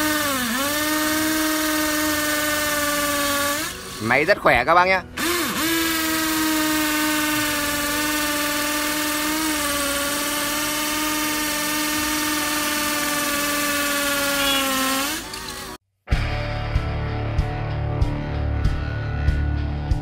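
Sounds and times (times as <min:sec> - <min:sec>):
cordless drill motor whine: 0:00.0 - 0:15.8.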